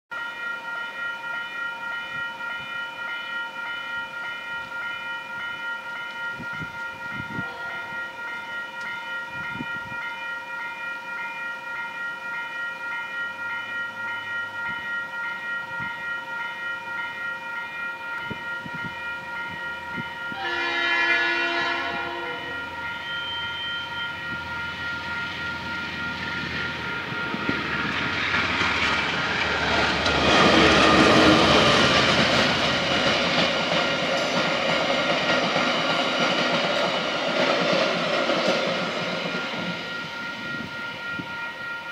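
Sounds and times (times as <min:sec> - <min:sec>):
diesel locomotive approaching: 0:00.1 - 0:41.9
level crossing warning bells: 0:00.1 - 0:41.9
train horn: 0:07.1 - 0:08.5, 0:19.9 - 0:25.0.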